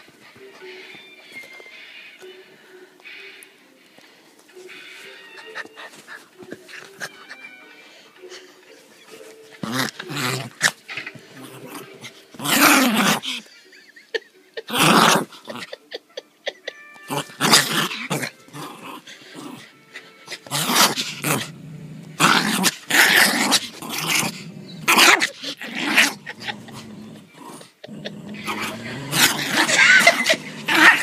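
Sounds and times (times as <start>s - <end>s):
dog play-growling: 9.5s - 13.4s, 14.7s - 15.7s, 17.1s - 31.0s.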